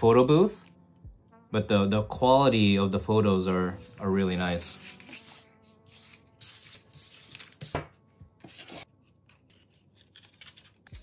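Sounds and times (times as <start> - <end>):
cards brushing and scraping: 4.6 - 11.0.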